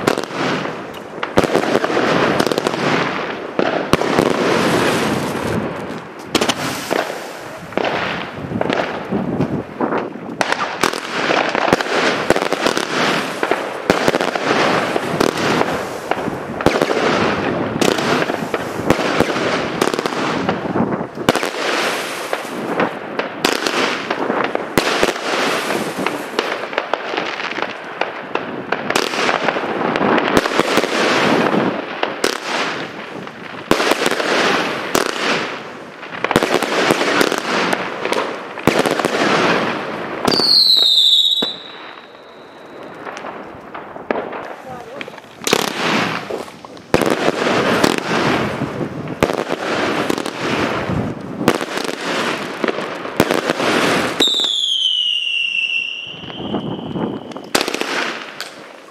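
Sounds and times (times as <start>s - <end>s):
fireworks shots and bursts: 0.0s - 58.9s
firework whistling tone: 6.3s - 8.3s, 40.2s - 43.2s, 53.7s - 58.9s.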